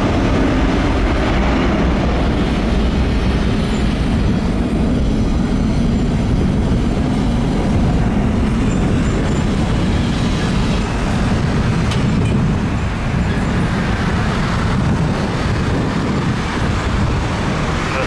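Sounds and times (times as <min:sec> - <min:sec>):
jet airliner engines rumbling: 0:00.0 - 0:18.0.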